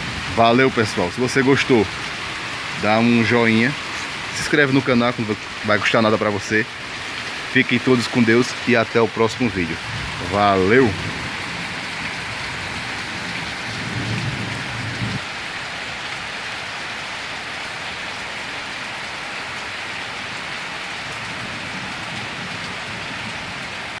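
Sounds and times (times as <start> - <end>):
low thunder rumble: 0.0 - 1.2, 9.8 - 15.2
heavy rain pouring: 0.0 - 24.0.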